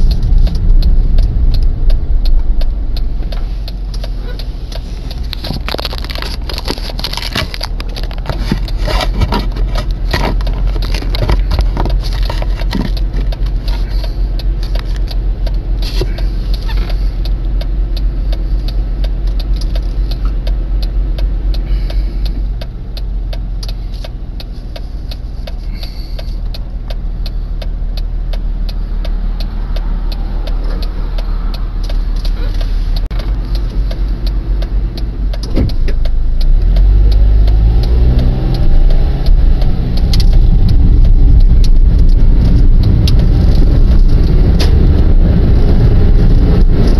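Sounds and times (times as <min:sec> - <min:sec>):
car engine idling: 0:00.0 - 0:46.9
small clicks and rattles: 0:03.3 - 0:15.2.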